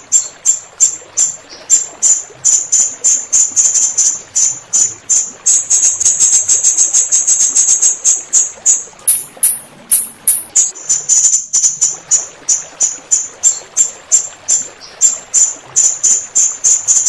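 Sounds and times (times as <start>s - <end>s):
faint running water: 0.0s - 17.0s
parrot chirping: 3.3s - 11.8s.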